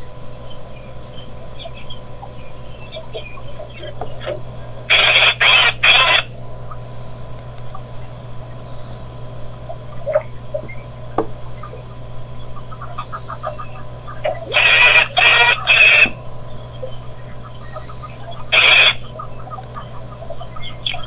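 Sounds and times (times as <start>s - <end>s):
steady low hum: 0.0s - 21.0s
harsh noisy bursts: 4.9s - 6.3s, 14.2s - 16.2s, 18.4s - 19.2s.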